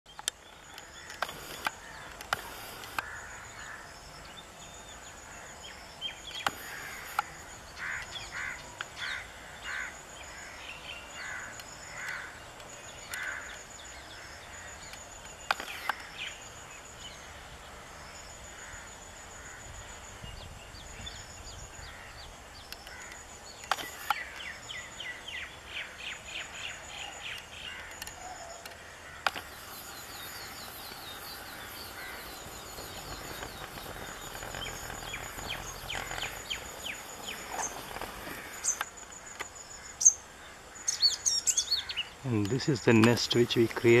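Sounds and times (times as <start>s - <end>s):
sharp clicks: 0.1s - 3.1s, 6.3s - 7.4s, 14.8s - 16.2s, 22.7s - 24.5s, 27.3s - 39.6s, 42.3s - 44.0s
rapid chattering bird calls: 0.1s - 16.7s, 20.9s - 40.2s, 40.8s - 44.0s
loud bird calls: 0.1s - 44.0s.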